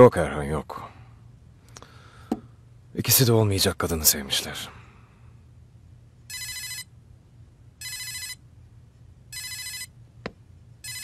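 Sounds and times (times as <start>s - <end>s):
phone electronic ringtone: 6.3s - 6.9s, 7.8s - 8.4s, 9.3s - 9.9s.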